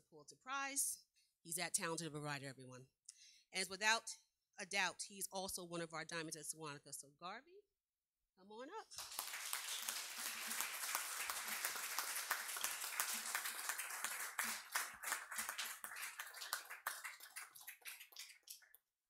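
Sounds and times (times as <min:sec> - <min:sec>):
audience applauding: 0:09.0 - 0:18.8.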